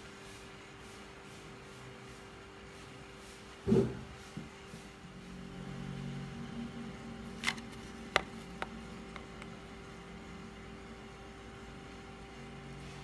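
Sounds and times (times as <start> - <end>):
steady low hum: 4.8 - 13.0.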